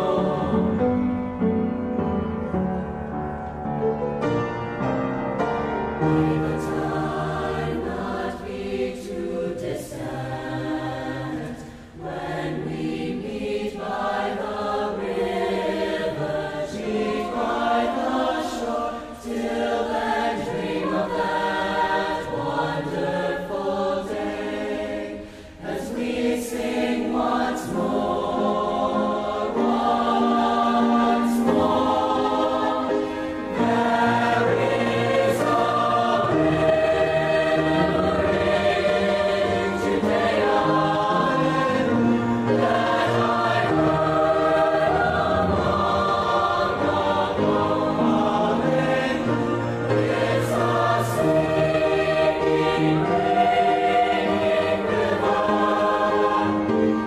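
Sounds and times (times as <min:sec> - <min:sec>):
instrumental accompaniment: 0:00.0 - 0:10.3
choir singing: 0:00.0 - 0:57.0.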